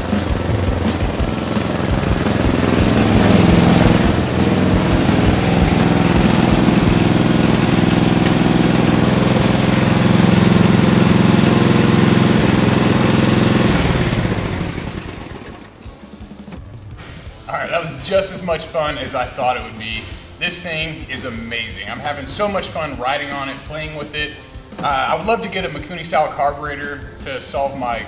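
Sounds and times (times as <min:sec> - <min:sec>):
riding lawn mower engine: 0:00.0 - 0:28.0.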